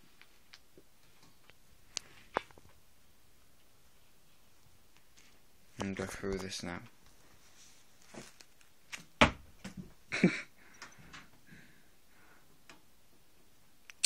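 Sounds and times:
faint rustles: 3.4s - 8.7s.

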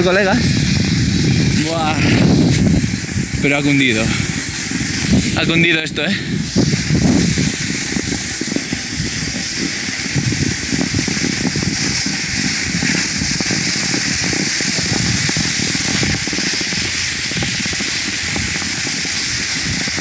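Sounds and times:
wind buffeting microphone: 0.0s - 20.0s
snow scraping under skis: 6.5s - 20.0s.

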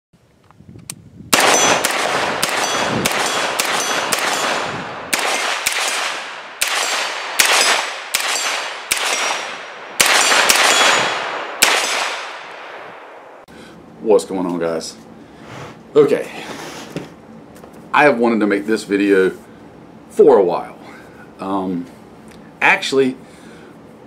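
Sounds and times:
pistol shots: 1.3s - 13.2s.

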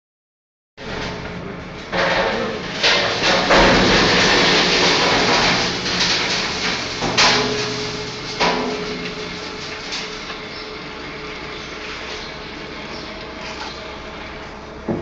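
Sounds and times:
conveyor belt rumbling clatter: 0.8s - 15.0s
knocks and bangs: 1.9s - 10.0s.

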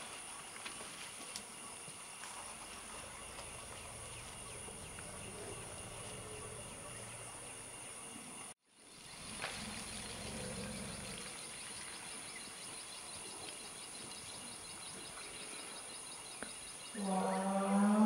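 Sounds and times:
chorus of forest insects: 0.0s - 18.0s
faint low hum: 1.6s - 8.5s.

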